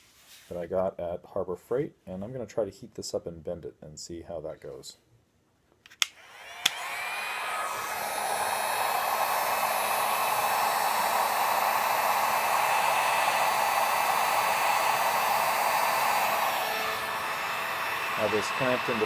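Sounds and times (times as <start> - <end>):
heat gun air rush: 6.0 - 19.0.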